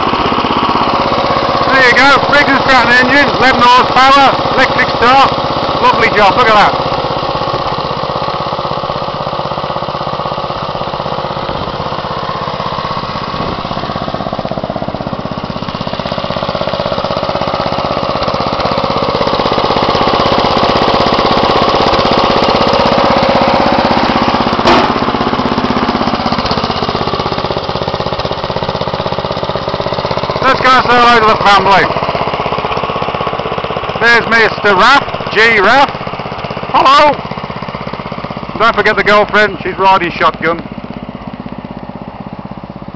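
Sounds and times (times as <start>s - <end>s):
garden tractor engine running: 0.0s - 42.9s
sharp knock: 24.6s - 25.0s.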